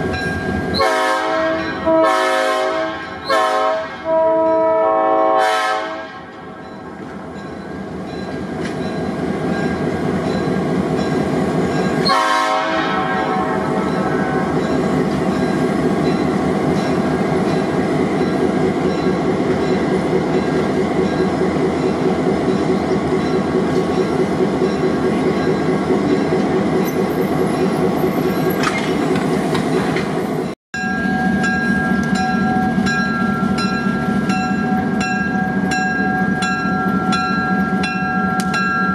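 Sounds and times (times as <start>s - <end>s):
multi-note locomotive horn: 0.7s - 6.5s, 12.0s - 14.6s
locomotive engines running: 13.7s - 38.9s.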